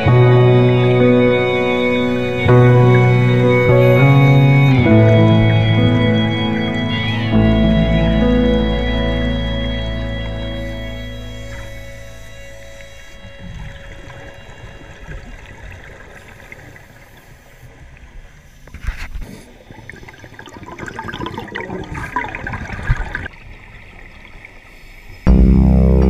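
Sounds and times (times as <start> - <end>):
background music: 0.0 - 16.1, 25.3 - 26.0
muffled underwater noise: 0.0 - 23.3
gurgling exhaust bubbles: 19.4 - 23.4.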